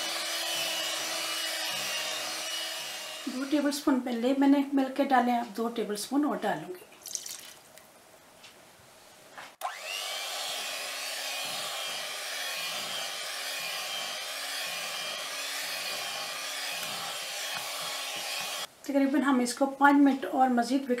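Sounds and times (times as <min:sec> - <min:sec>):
electric hand mixer whining: 0:00.0 - 0:03.9, 0:09.6 - 0:18.7.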